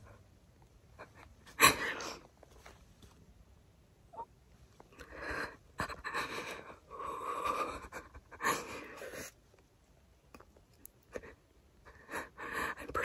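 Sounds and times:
woman breathing heavily: 0:01.0 - 0:02.3, 0:05.0 - 0:09.4, 0:11.1 - 0:13.0.

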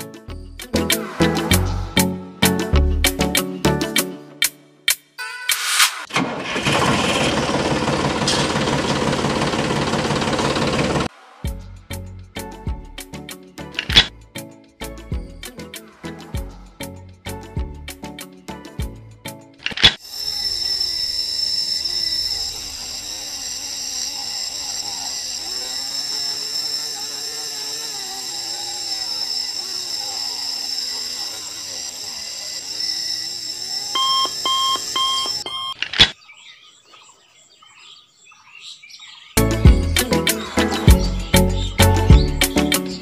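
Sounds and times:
quick beeps: 0:34.0 - 0:35.8.

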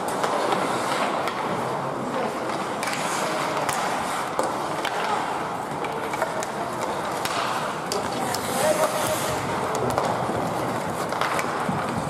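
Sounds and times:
skate blades scraping ice: 0:00.0 - 0:12.0
sticks clicking on puck: 0:00.0 - 0:12.0
murmur of voices: 0:01.5 - 0:11.0.

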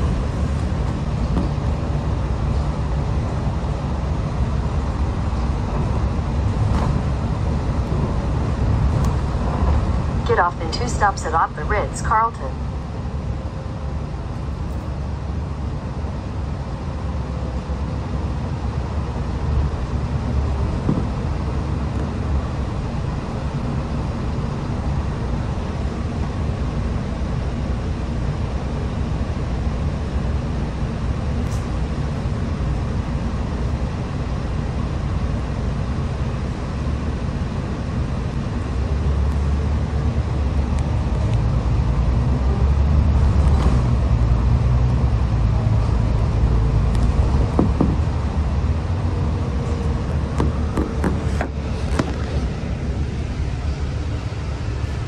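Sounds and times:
bus engine rumble: 0:00.0 - 0:55.0.

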